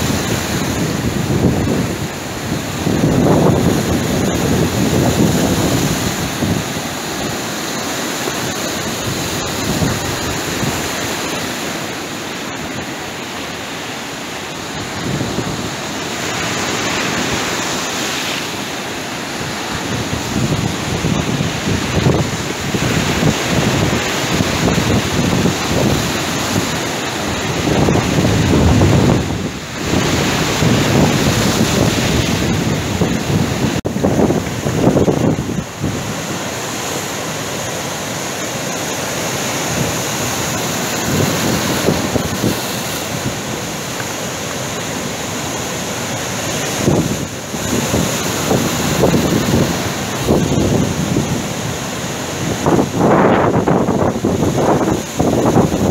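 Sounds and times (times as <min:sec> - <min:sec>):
wind buffeting microphone: 0:00.0 - 0:11.6, 0:19.2 - 0:55.9
surf on pebbly shore: 0:00.0 - 0:55.9.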